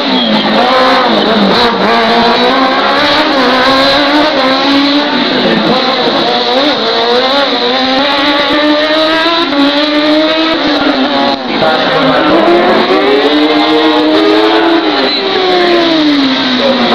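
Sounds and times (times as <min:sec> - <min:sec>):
race car engine revving: 0:00.0 - 0:16.9.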